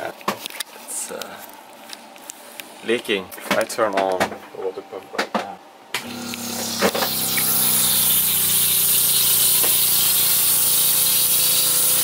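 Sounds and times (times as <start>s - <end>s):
water pump humming: 6.0s - 12.0s
pressurised water hissing: 6.1s - 12.0s.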